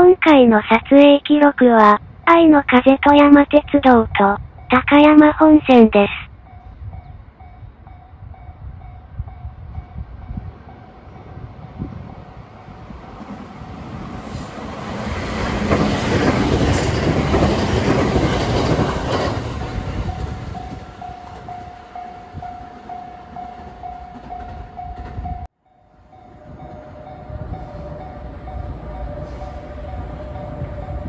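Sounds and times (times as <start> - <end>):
train wheels clattering over rails: 14.3 - 21.6
level crossing warning bell: 19.7 - 31.0.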